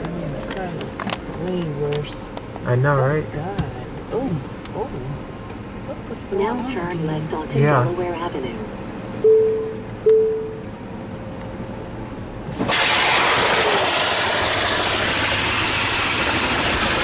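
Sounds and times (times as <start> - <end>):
water spray hissing on car: 12.6 - 17.0.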